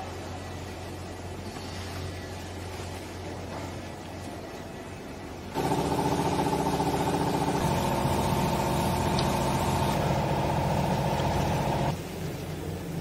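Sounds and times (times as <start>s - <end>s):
electric motor and pump humming: 5.4s - 13.0s.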